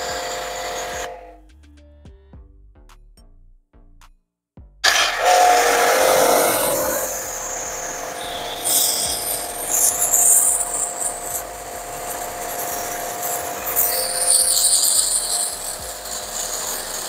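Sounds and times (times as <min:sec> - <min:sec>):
pressure washer motor hum: 0:00.0 - 0:01.3, 0:04.9 - 0:17.0
water jet spraying on concrete: 0:04.9 - 0:17.0.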